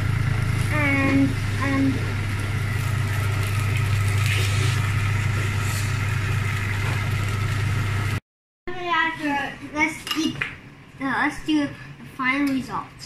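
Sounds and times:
kitchen fan humming: 0.0 - 8.2.

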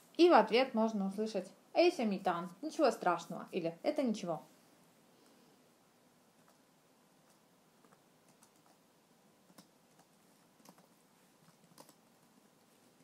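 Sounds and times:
keyboard typing: 7.2 - 8.8, 9.4 - 12.4.

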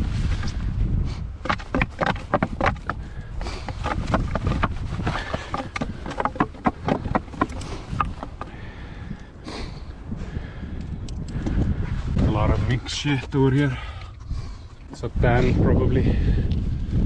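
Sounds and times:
wind rumble on microphone: 0.0 - 17.0
dog scraping and knocking on rock: 1.4 - 8.6.

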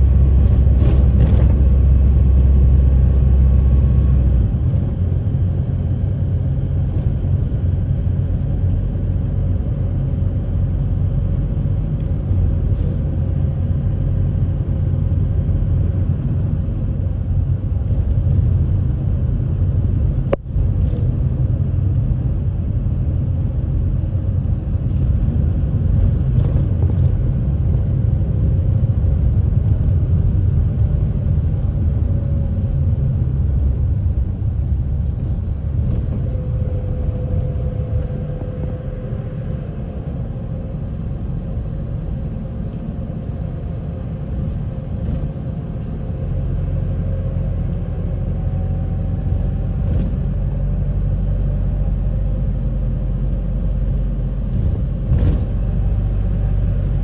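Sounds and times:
bus engine and tyres rumbling: 0.0 - 57.0.

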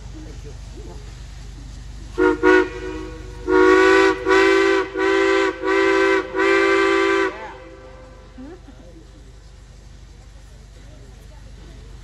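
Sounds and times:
steam locomotive chime whistle: 2.2 - 8.2.

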